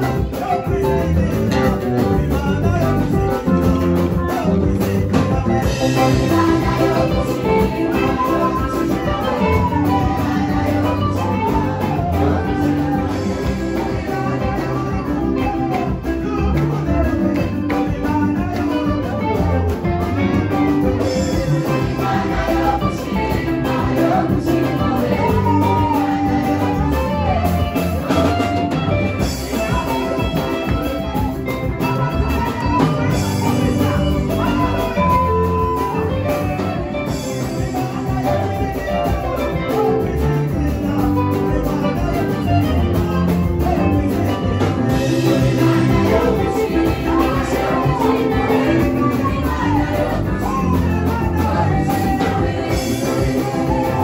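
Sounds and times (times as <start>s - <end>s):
band with drum kit: 0.0s - 54.0s
woman singing into microphone: 44.4s - 54.0s.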